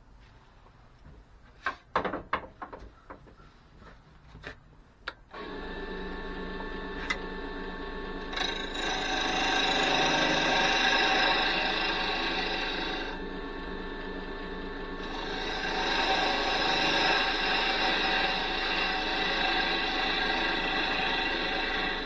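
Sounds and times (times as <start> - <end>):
turning tool cutting wood: 5.3 - 22.0
wood lathe motor whine: 5.3 - 22.0.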